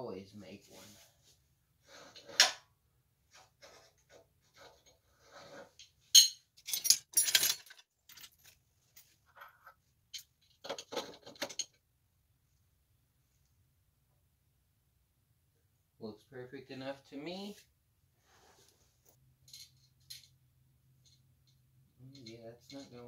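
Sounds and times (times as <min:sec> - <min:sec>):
rummaging through parts: 0:05.6 - 0:11.8
metal tools clinking on concrete: 0:05.8 - 0:10.4, 0:19.4 - 0:20.4.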